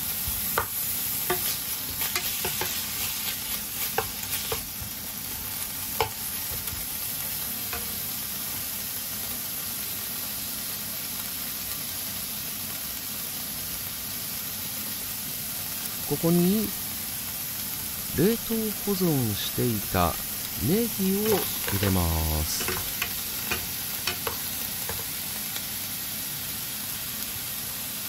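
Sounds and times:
meat sizzling in a frying pan: 0.0s - 28.0s
wooden spatula tapping and scraping pan: 0.2s - 4.9s, 5.9s - 6.8s, 20.1s - 25.1s.

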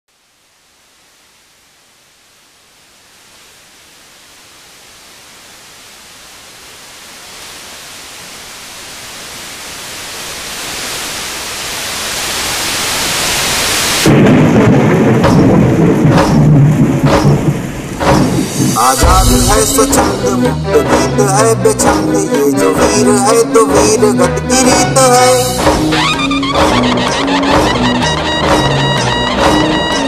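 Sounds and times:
rushing hiss: 4.6s - 14.6s, 16.1s - 20.6s
deep boom: 14.1s - 20.5s.

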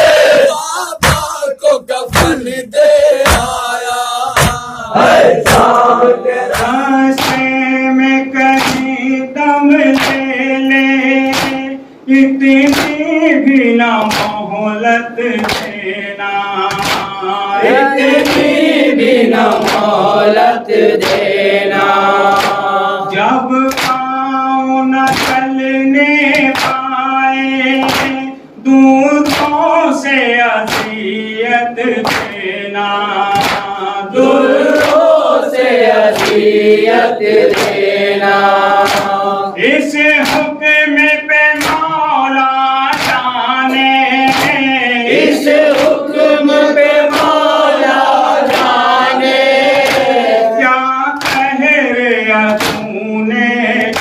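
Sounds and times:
group joining in chanting: 0.0s - 11.8s, 15.2s - 24.3s, 29.2s - 40.6s, 42.8s - 54.0s
men chanting a lament: 0.0s - 54.0s
hand slaps on chest: 1.0s - 1.3s, 3.2s - 3.6s, 4.4s - 4.7s, 5.4s - 5.8s, 6.5s - 7.5s, 8.6s - 8.9s, 10.0s - 10.3s, 11.2s - 11.7s, 12.7s - 13.0s, 14.0s - 14.4s, 15.4s - 15.8s, 16.7s - 17.2s, 19.5s - 19.9s, 22.3s - 22.6s, 23.7s - 24.0s, 25.1s - 25.5s, 26.3s - 26.8s, 27.8s - 28.2s, 29.2s - 29.5s, 30.7s - 31.0s, 32.0s - 32.4s, 33.4s - 33.7s, 36.1s - 36.4s, 37.5s - 37.8s, 38.8s - 39.2s, 40.2s - 40.5s, 41.6s - 41.9s, 42.9s - 43.2s, 44.3s - 44.6s, 51.2s - 51.5s, 52.5s - 52.9s.

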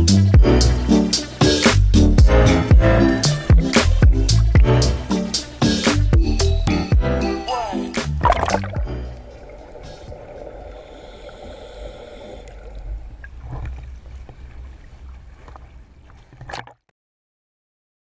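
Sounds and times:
boat engine hum: 0.0s - 16.8s
water splashes: 7.6s - 16.9s
water sloshing: 8.1s - 16.9s.

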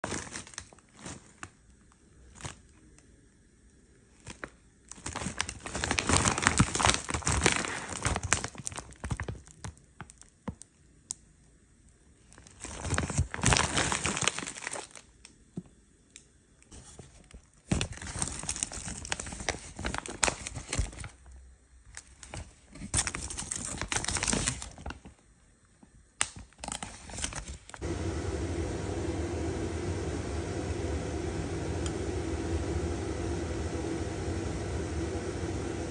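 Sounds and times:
plastic bag crinkling: 0.0s - 2.8s, 4.1s - 10.6s, 12.2s - 15.1s, 16.8s - 25.2s.

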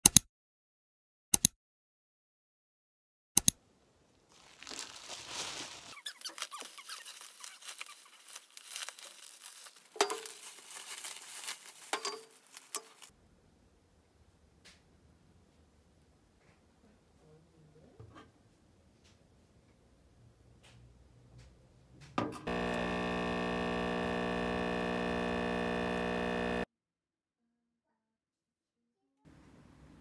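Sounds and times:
sharp clicks: 3.4s - 3.6s
packaging crinkling and tearing: 4.3s - 13.1s.

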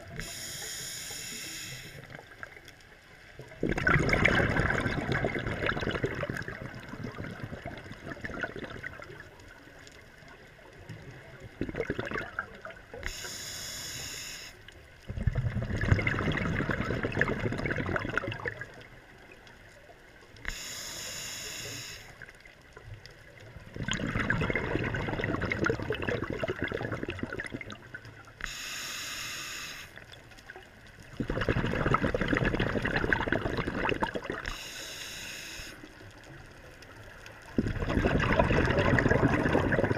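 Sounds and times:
regulator hissing inhale: 0.1s - 2.2s, 13.0s - 14.7s, 20.5s - 22.3s, 28.4s - 30.0s, 34.4s - 36.0s
exhaled bubbles rushing: 3.4s - 9.3s, 11.4s - 13.0s, 15.1s - 18.9s, 23.5s - 28.2s, 31.1s - 34.5s, 37.4s - 39.9s.

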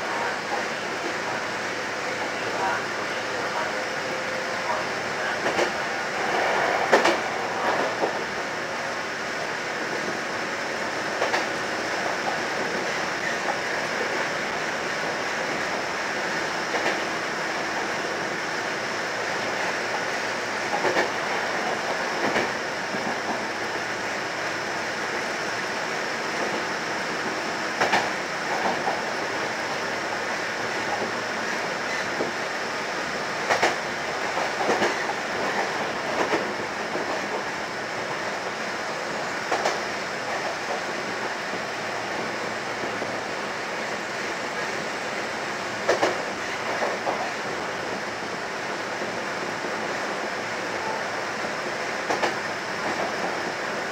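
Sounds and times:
electric train rolling: 0.0s - 53.9s
train wheels clacking: 5.2s - 8.4s, 11.1s - 14.2s, 16.7s - 17.1s, 20.7s - 23.8s, 27.2s - 29.5s, 33.4s - 37.6s, 39.4s - 41.6s, 45.8s - 47.3s, 52.0s - 53.4s.

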